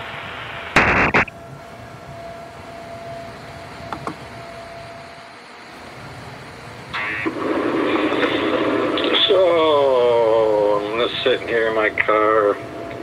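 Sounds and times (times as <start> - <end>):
static burst: 0.0 - 1.4, 5.6 - 13.0
phone line hiss: 0.0 - 13.0
car cabin background noise: 0.8 - 13.0.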